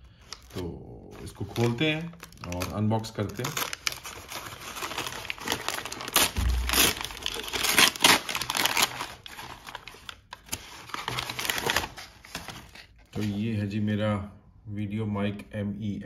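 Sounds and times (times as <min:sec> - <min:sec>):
paper tearing and crumpling: 0:00.2 - 0:13.4.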